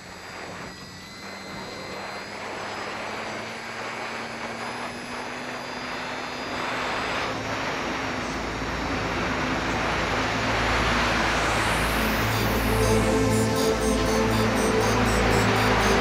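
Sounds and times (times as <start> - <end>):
model plane motor whining: 0.0 - 9.4.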